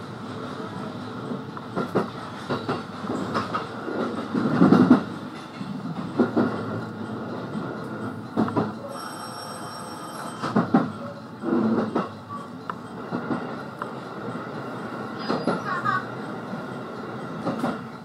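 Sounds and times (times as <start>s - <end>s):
train rumble: 0.0s - 18.0s
train wheels clacking over rail joints: 1.2s - 8.9s, 10.2s - 18.0s
high electronic ringing tone: 8.9s - 10.6s.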